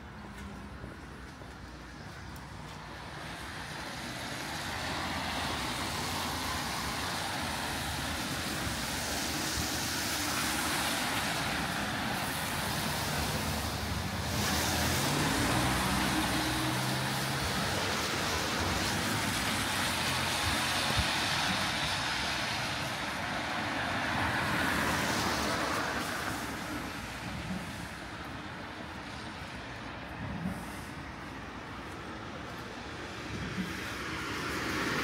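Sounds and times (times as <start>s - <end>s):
tyre hiss on wet road: 2.5s - 35.0s.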